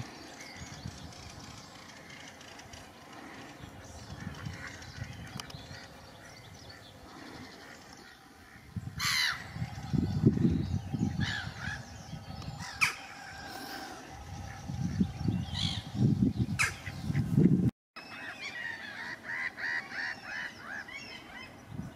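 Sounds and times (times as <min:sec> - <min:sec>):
low rumble: 0:08.5 - 0:17.7.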